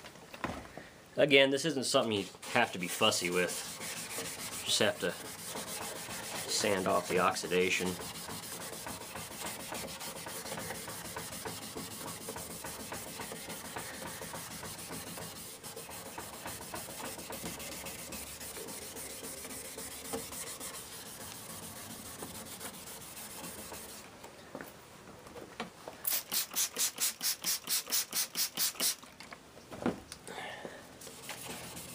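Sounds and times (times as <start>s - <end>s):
sandpaper scratching on plastic: 2.2s - 24.0s, 26.2s - 29.0s, 31.1s - 31.9s.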